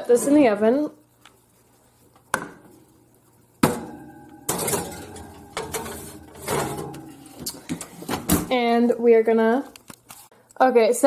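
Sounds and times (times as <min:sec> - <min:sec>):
glass scraping on metal oven rack: 0:03.8 - 0:07.4.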